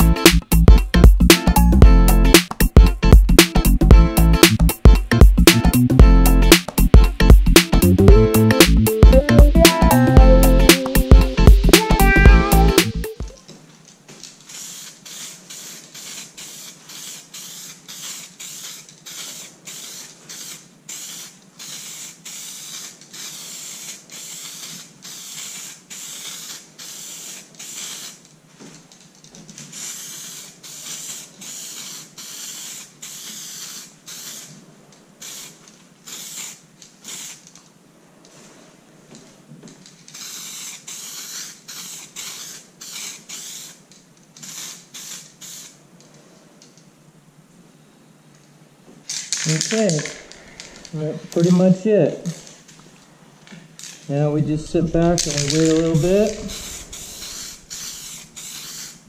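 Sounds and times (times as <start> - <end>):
aerosol spray can hissing: 9.6 - 13.1, 14.4 - 28.2, 29.7 - 34.6, 35.2 - 37.4, 40.1 - 45.8, 54.9 - 59.0.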